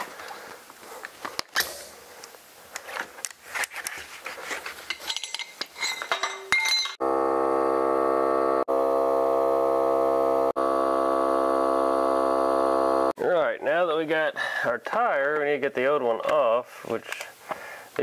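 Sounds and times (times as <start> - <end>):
tire inflator droning: 7.0 - 13.2.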